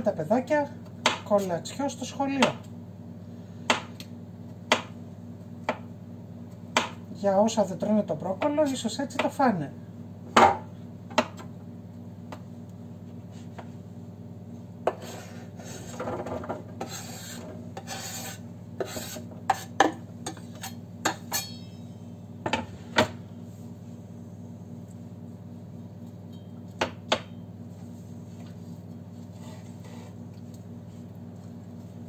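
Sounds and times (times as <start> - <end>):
knife scraping on wooden board: 14.9 - 16.0, 16.8 - 21.5, 29.3 - 30.2.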